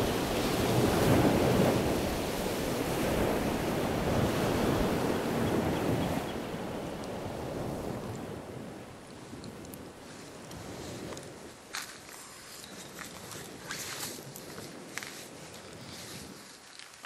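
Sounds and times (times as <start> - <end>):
wind buffeting microphone: 0.0 - 16.6.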